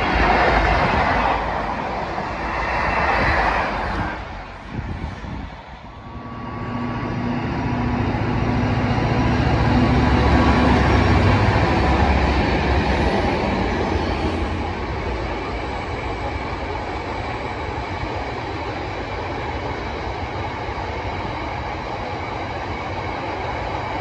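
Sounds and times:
diesel locomotive engine drone: 0.0s - 24.0s
wagon wheels rumbling on rail: 0.0s - 24.0s.

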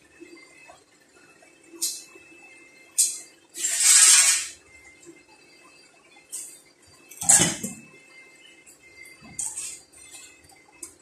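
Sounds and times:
metal scraping: 3.0s - 4.6s.

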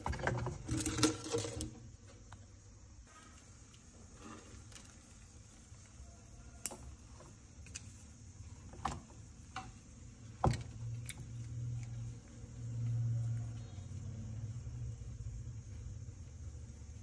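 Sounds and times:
low steady rumble: 7.0s - 17.0s.

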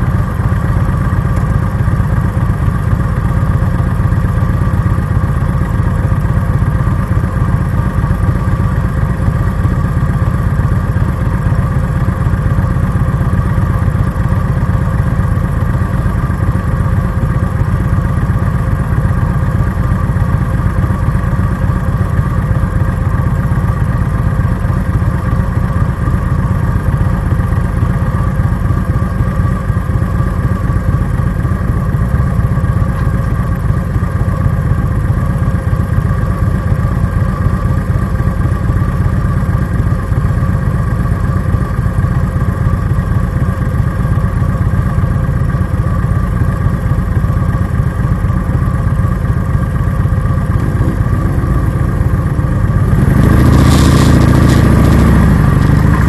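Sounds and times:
motorcycle engine idling: 0.0s - 56.0s
motorcycle revving pulling away: 50.2s - 56.0s.

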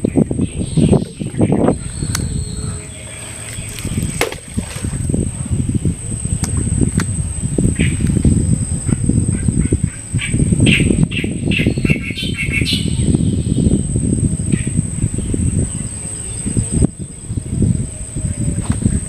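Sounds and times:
loud low rumble: 0.0s - 11.8s
birds chirping: 0.0s - 19.0s.

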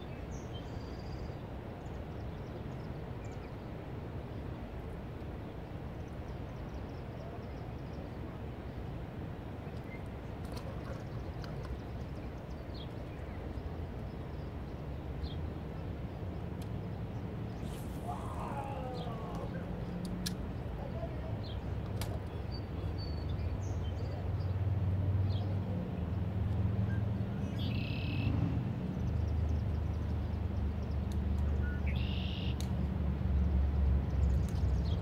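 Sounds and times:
short high bird chirps: 31.8s - 32.6s.

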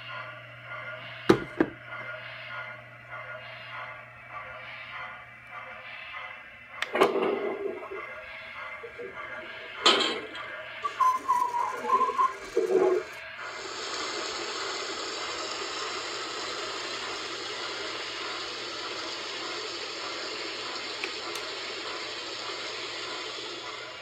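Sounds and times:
steam hissing: 6.9s - 24.0s.

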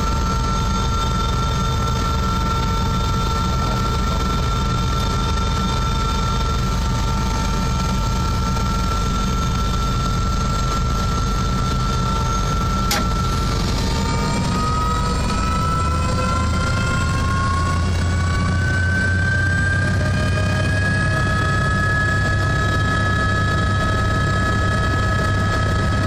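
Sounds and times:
helicopter engine and rotor: 0.0s - 26.0s
sharp click: 12.8s - 13.2s.

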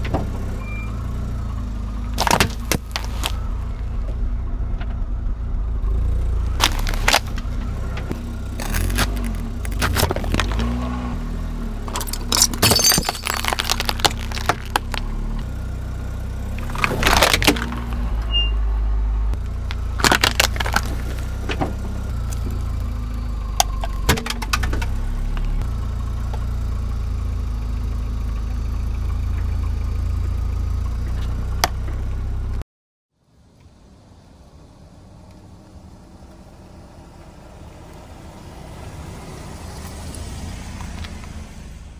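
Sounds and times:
car engine rumbling: 0.0s - 32.6s, 33.2s - 41.9s
tyre crushing small objects: 2.1s - 3.4s, 6.5s - 10.9s, 11.8s - 15.5s, 16.5s - 18.1s, 19.4s - 22.7s.

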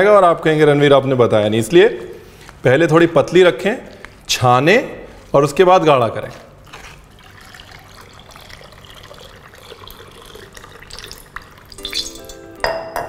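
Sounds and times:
liquid pouring into a pot: 6.6s - 12.5s
glass clinks and ringing: 11.8s - 13.0s.

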